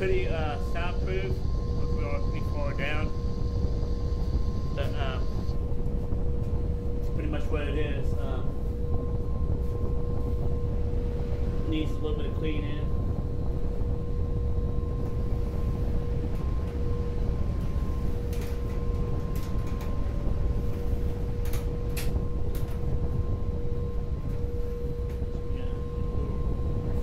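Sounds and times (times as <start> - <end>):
machine rumbling and humming: 0.0 - 27.0.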